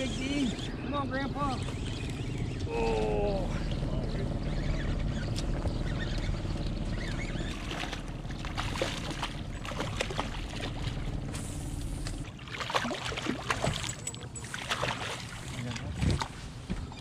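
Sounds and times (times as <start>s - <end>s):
boat motor running: 0.0s - 17.0s
fish splashing in water: 5.4s - 16.4s.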